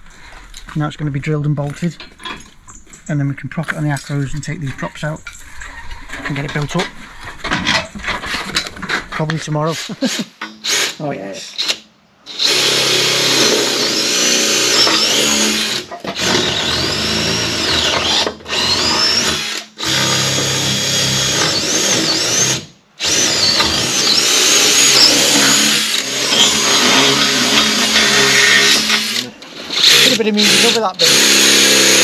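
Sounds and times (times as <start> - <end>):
cordless drill boring through steel: 9.8 - 11.0, 11.6 - 32.0.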